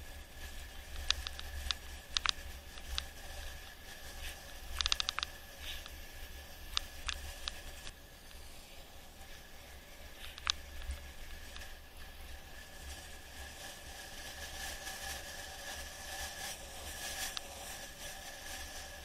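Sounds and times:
wind and road rumble: 0.0 - 19.0
quick run of ticks: 0.4 - 7.9, 10.0 - 11.8, 12.9 - 19.0
bike rattling clicks: 0.8 - 3.6, 4.2 - 6.0, 6.7 - 7.9, 10.2 - 11.7.

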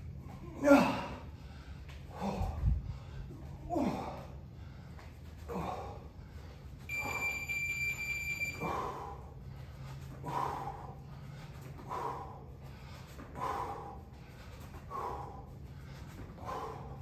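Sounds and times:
man breathing hard: 0.0 - 7.4, 8.5 - 17.0
electronic beep: 6.9 - 8.6.

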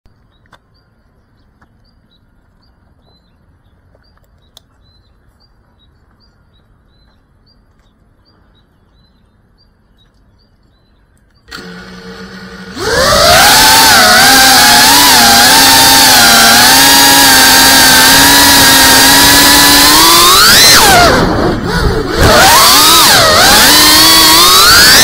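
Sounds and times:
bird chirping: 0.1 - 11.6
faint outdoor background: 0.1 - 25.0
drone motors humming: 10.3 - 25.0.

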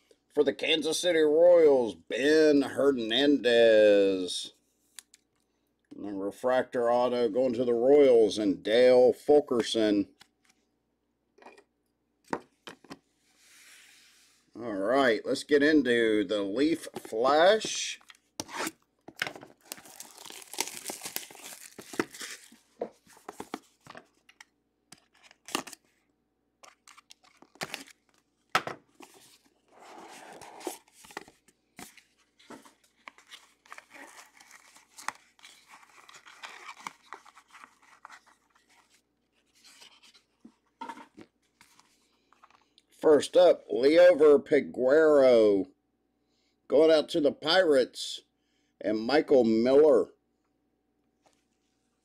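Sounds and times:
plastic crinkling and rustling: 19.1 - 24.4, 26.6 - 29.5, 30.3 - 40.3
packaging tearing: 19.5 - 22.6, 24.9 - 25.9, 26.6 - 28.2, 32.9 - 38.9.

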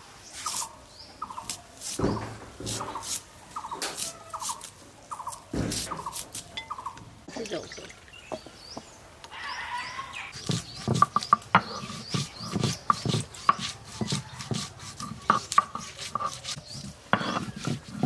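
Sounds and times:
block pounding garlic on wood: 5.5 - 6.2, 10.4 - 18.0.

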